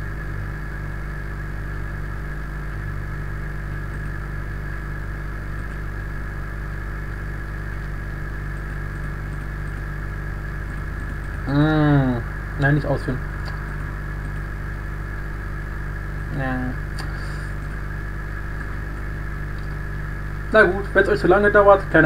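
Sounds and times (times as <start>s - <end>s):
low electrical hum: 0.0s - 22.0s.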